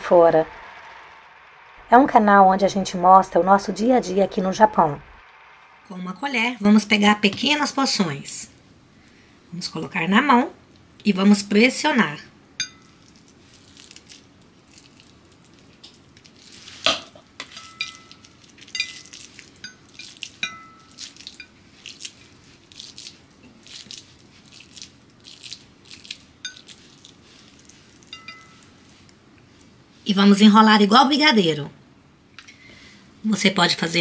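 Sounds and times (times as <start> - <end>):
metal spoon clinking on bowl: 12.6 - 13.1, 16.9 - 21.6, 26.4 - 26.8, 28.0 - 28.8.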